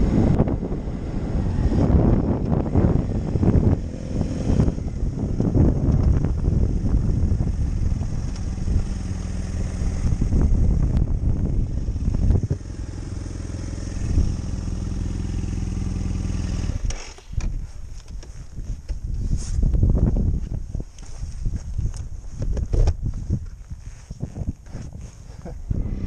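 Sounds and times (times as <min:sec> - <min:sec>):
motorcycle riding on gravel: 0:00.0 - 0:26.0
motorcycle engine idling: 0:04.8 - 0:16.9.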